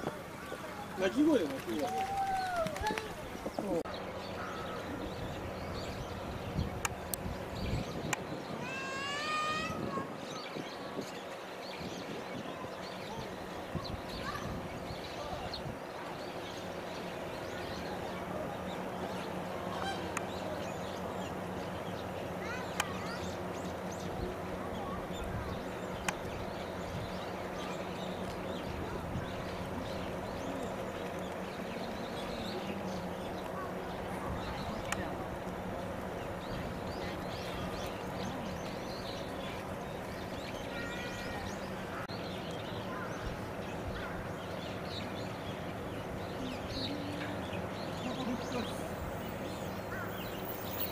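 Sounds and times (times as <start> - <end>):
outdoor background noise: 0.0 - 50.9
small birds chirping: 0.0 - 50.9
birds honking: 19.6 - 20.2.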